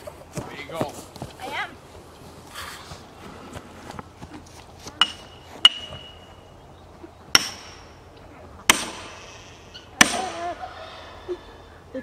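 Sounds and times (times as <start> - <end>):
hammer striking metal wedge: 5.0 - 6.2, 7.3 - 8.0, 8.7 - 10.4.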